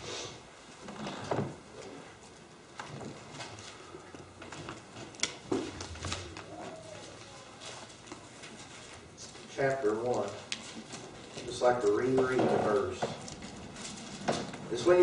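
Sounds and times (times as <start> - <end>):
pages being turned: 5.6 - 8.0.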